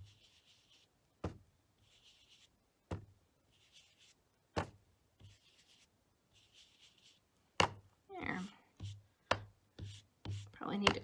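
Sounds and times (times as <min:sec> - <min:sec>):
foam swishing on paper: 0:00.0 - 0:00.9, 0:01.8 - 0:02.5, 0:03.5 - 0:04.2, 0:05.2 - 0:07.3
dauber tapping on paper: 0:08.8 - 0:11.0.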